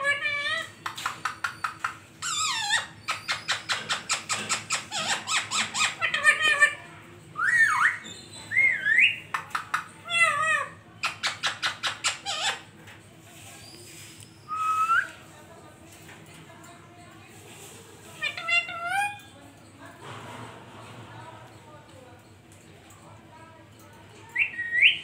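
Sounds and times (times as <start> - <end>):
parakeet squawks: 1.4 - 6.8, 10.0 - 12.7.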